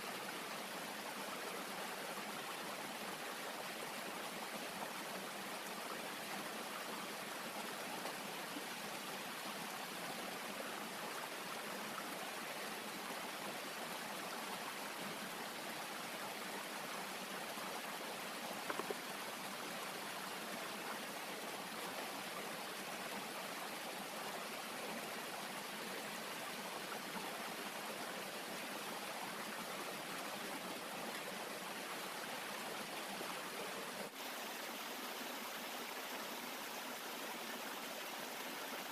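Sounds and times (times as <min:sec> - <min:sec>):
stream flowing: 0:00.0 - 0:38.9
faint clicks: 0:18.6 - 0:19.1.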